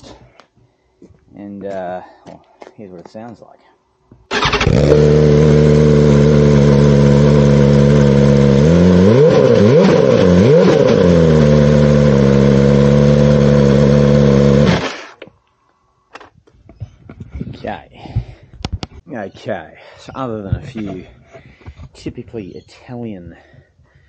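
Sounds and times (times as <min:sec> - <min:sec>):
motorcycle engine idling and revving: 0:04.3 - 0:15.2.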